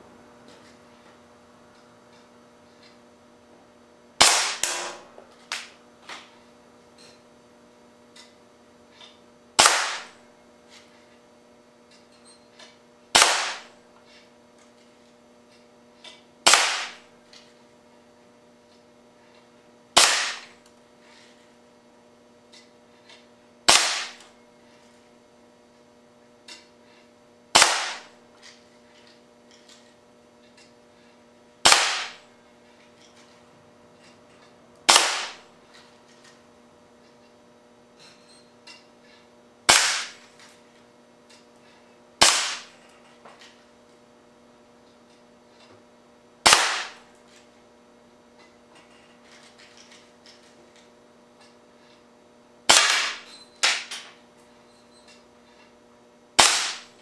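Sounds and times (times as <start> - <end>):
air cannon shots: 4.2 - 5.1, 9.6 - 10.2, 13.1 - 13.7, 16.4 - 17.0, 20.0 - 20.6, 23.7 - 24.2, 27.5 - 28.1, 31.6 - 32.2, 34.9 - 35.4, 39.7 - 40.2, 42.2 - 42.7, 46.4 - 47.0, 52.7 - 53.9, 56.4 - 56.9.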